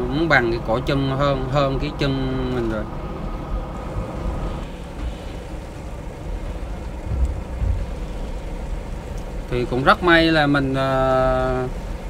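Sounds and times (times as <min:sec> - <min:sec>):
boat engines rumbling: 0:00.0 - 0:12.0
faint steady hum: 0:00.0 - 0:12.0
wind and water wash: 0:02.9 - 0:12.0.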